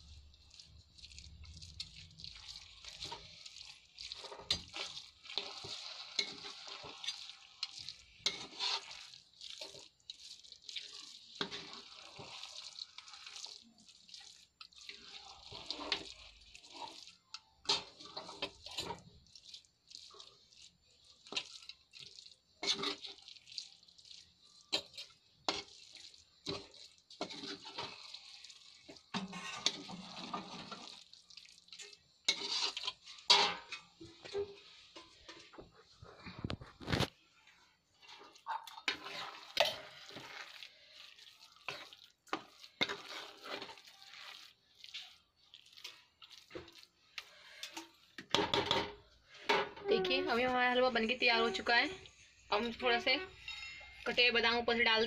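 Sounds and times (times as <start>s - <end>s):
spoon scraping a pan: 0.6s - 54.6s.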